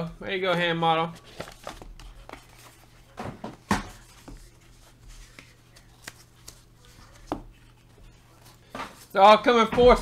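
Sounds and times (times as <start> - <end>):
cards rubbing on desk mat: 1.2 - 8.6.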